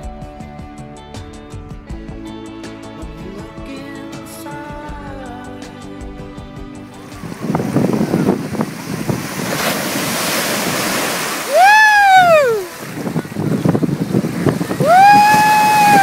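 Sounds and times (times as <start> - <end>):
small waves breaking: 7.0 - 16.0
wind on microphone: 7.0 - 16.0
child squealing: 11.5 - 12.7, 14.8 - 16.0.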